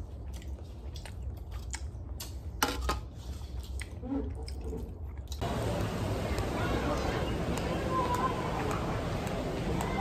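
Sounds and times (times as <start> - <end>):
chewing and mouth sounds: 0.0 - 5.5.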